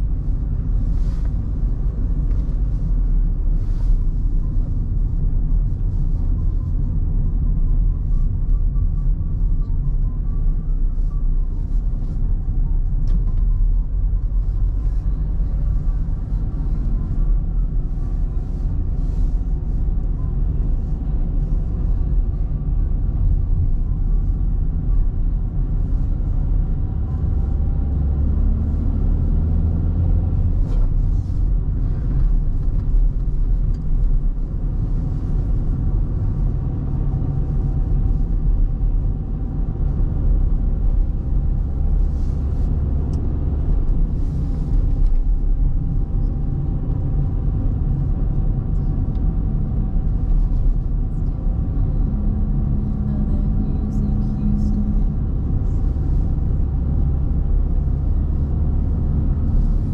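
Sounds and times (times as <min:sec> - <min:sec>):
car engine and tyre rumble: 0:00.0 - 0:59.9.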